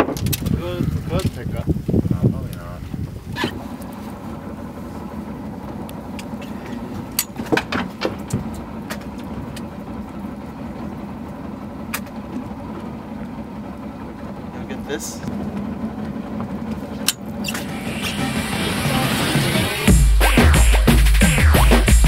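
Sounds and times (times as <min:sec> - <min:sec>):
boat engine idling: 0:00.0 - 0:22.0
sharp clicks and knocks: 0:05.9 - 0:09.7.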